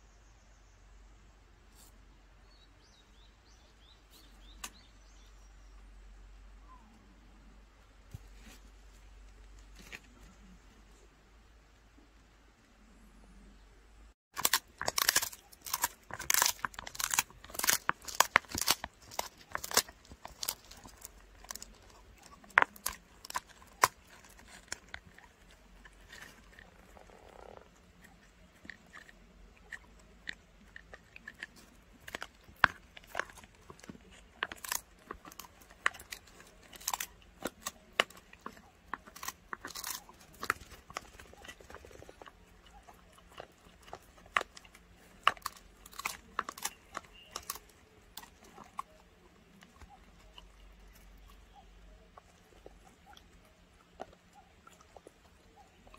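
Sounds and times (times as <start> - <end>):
dog chewing crunchy treat: 14.3 - 55.9.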